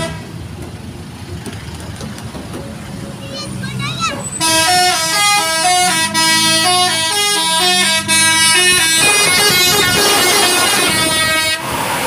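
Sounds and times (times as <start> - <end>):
musical air horn playing a tune: 4.4 - 11.9.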